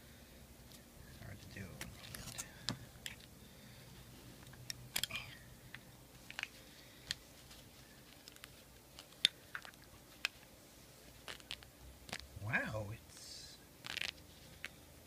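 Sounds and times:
plastic bag crinkling: 13.8 - 14.2.

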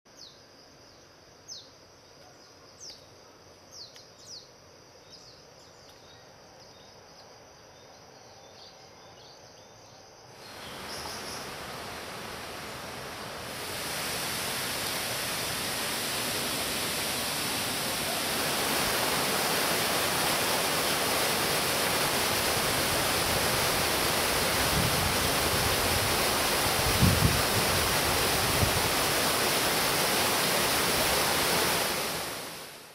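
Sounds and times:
faint forest background: 0.1 - 32.9
waterfall rushing: 10.4 - 32.9.

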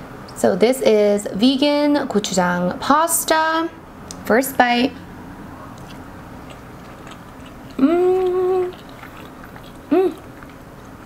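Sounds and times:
woman chewing food: 5.0 - 11.0
woman humming mmm: 7.8 - 8.8, 9.8 - 10.4.

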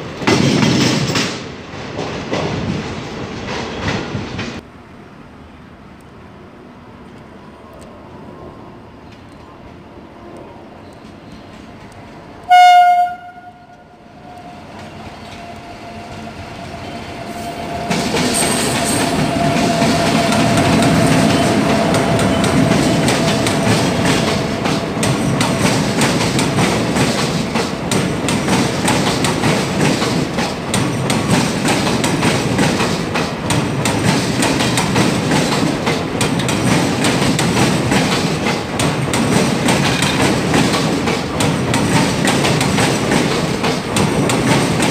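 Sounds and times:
train wheels clattering: 0.1 - 4.6, 14.7 - 44.9
train horn blast: 12.5 - 14.7.

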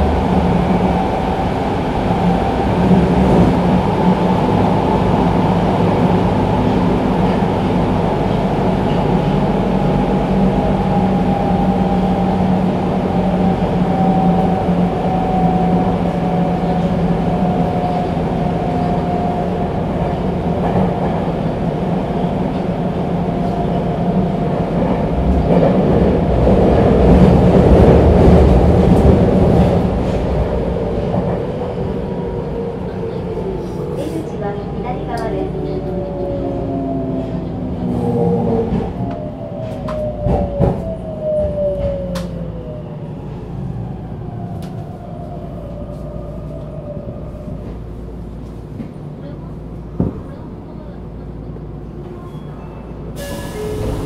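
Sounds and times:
subway car wheels rumbling: 0.0 - 54.0.

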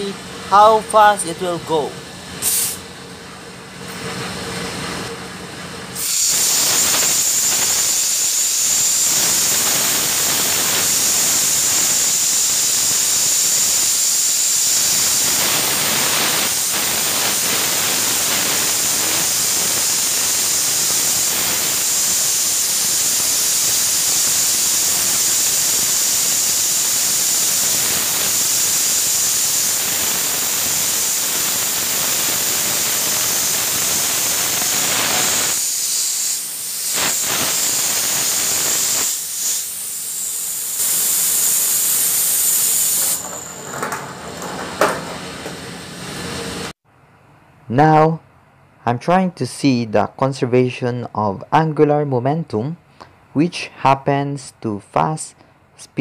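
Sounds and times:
compressed air hiss with whine: 0.0 - 2.9, 5.9 - 46.8.

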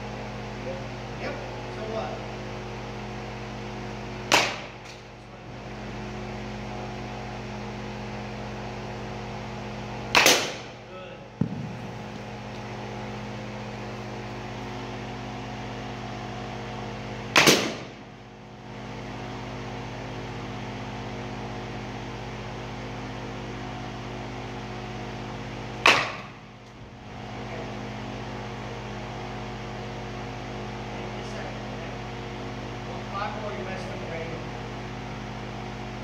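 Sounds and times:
steady mechanical hum: 0.0 - 36.0
baseball bat hitting ball: 4.2 - 5.0, 10.1 - 10.8, 11.4 - 12.2, 17.3 - 18.0, 25.8 - 26.4.

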